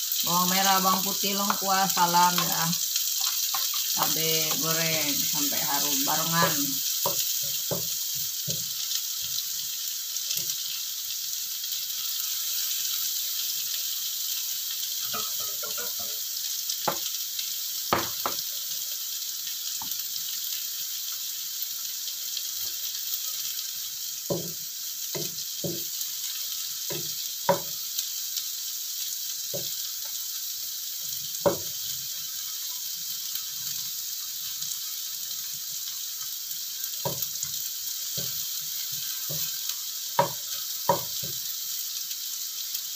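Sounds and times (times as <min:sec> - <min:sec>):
oil sizzling in a wok: 0:00.0 - 0:42.9
wooden spatula knocking on wok: 0:06.4 - 0:07.9, 0:15.1 - 0:16.1, 0:16.9 - 0:17.1, 0:17.9 - 0:18.4, 0:24.3 - 0:25.9.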